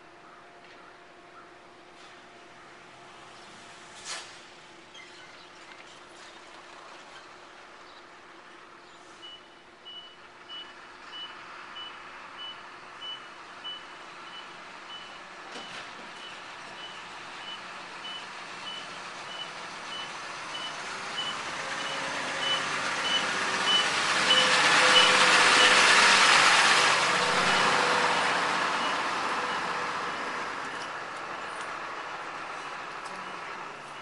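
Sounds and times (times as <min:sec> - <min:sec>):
truck engine and tyre noise: 0:00.0 - 0:34.0
truck backup alarm beeping: 0:09.2 - 0:26.6, 0:27.2 - 0:31.7, 0:33.2 - 0:34.0.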